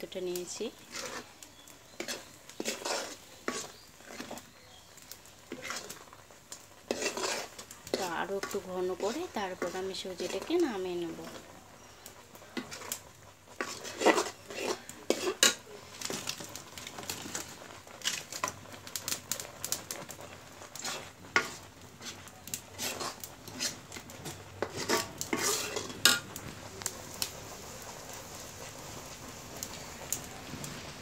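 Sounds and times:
metal spoon scraping iron pan: 0.8s - 4.5s, 5.4s - 6.1s, 6.8s - 10.6s, 11.2s - 13.0s, 13.6s - 18.6s, 20.0s - 26.3s.

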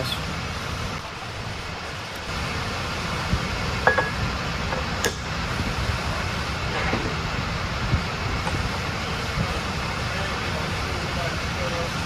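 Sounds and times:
fan-like background noise: 0.0s - 12.0s.

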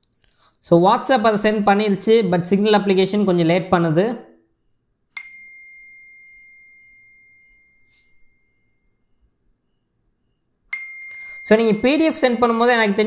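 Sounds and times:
bright bell-like ding: 5.2s - 8.6s, 10.7s - 11.9s.

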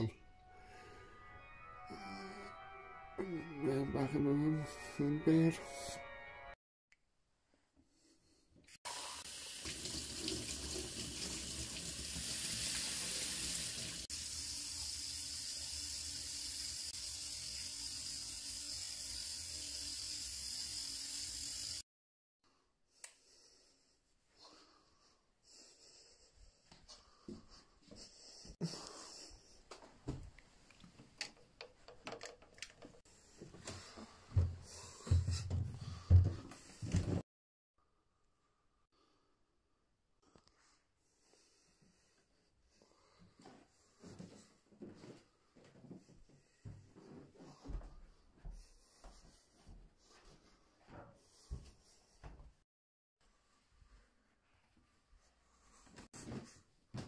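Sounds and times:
heavy footsteps on stairs: 33.4s - 37.2s.

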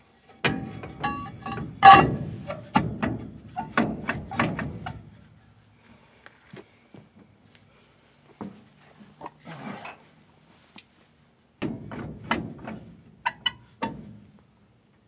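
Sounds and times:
metal clunks and scrapes: 0.2s - 5.6s, 8.4s - 10.2s, 11.6s - 14.4s.

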